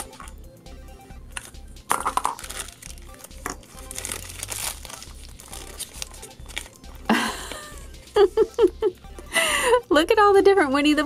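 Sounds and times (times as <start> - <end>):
foil bag crinkling: 1.4 - 6.8.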